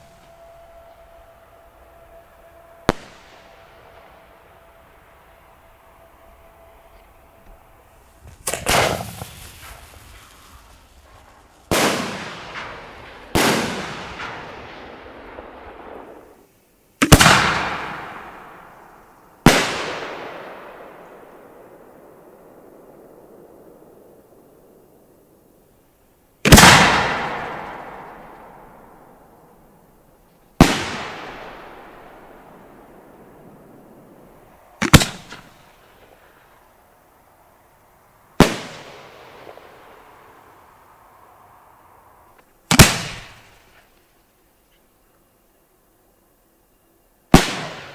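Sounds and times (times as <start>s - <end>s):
firework shell bangs echoing: 0.0s - 16.2s.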